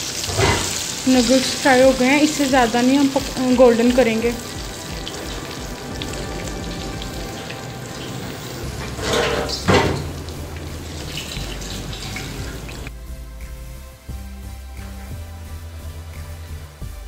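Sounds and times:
hot oil sizzling in a wok: 0.0 - 12.9
oil dripping from skimmer: 3.8 - 12.9.

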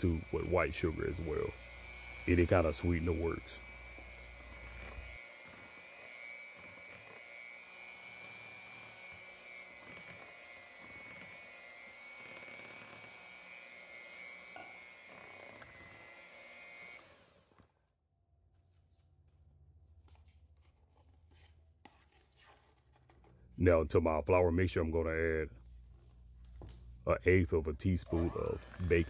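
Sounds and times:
electric hand mixer running: 0.0 - 17.8, 28.1 - 29.0.

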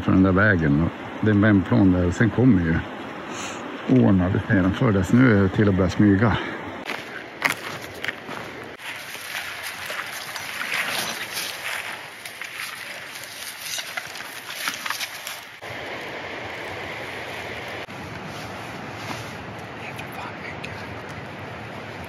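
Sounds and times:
stream water flowing: 0.0 - 22.0
footsteps on forest ground: 6.3 - 19.8
clothing and gear rustling: 6.8 - 15.7, 17.1 - 19.6.

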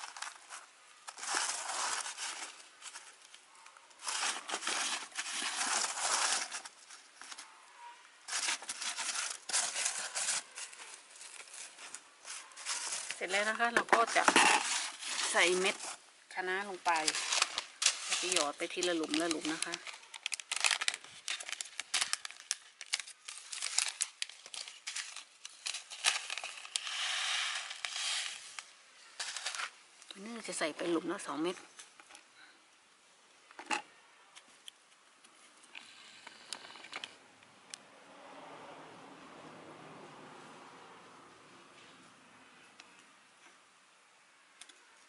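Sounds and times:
plastic seed packet crinkling: 0.0 - 7.5, 8.3 - 32.2
seeds rustling: 0.0 - 31.6
hand rubbing soil on plastic tray: 26.7 - 28.6.

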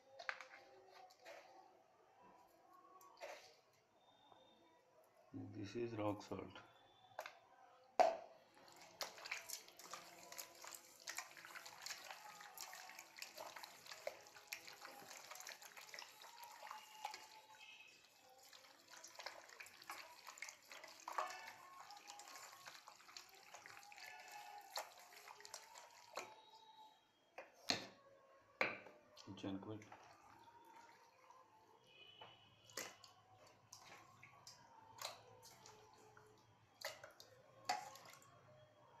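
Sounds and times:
wet squelching and sloshing: 8.6 - 26.6, 32.7 - 38.2.

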